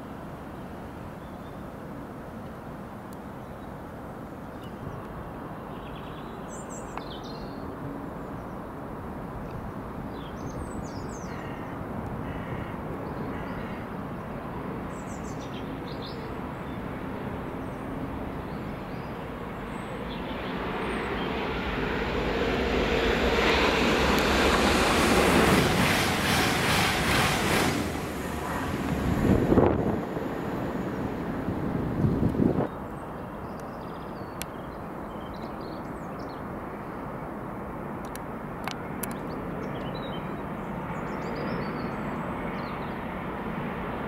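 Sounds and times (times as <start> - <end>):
train approaching: 16.3 - 32.6.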